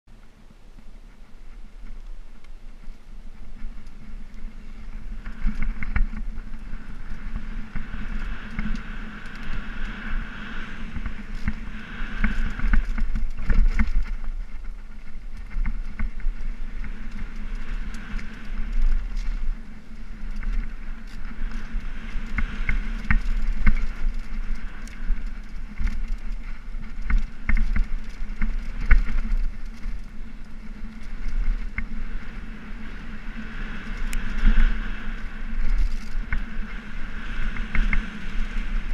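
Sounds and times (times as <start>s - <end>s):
bike knocking and rattling: 0.1s - 38.9s
bike tyres rumbling on dirt: 0.1s - 38.9s
rushing air: 3.3s - 27.4s.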